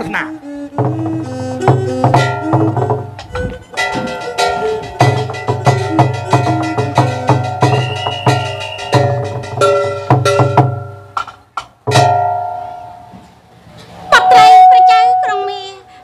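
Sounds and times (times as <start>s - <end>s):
drum strokes: 0.6s - 13.4s
ringing pitched percussion: 1.6s - 11.0s, 11.9s - 13.2s, 14.1s - 16.0s.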